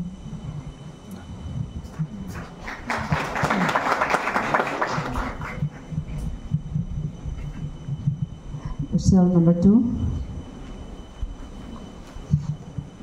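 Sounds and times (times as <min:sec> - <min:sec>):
audience applauding: 0:02.3 - 0:05.9.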